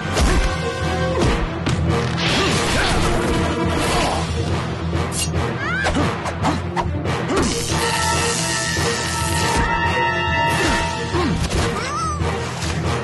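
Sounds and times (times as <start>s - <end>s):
music: 0.0s - 13.0s.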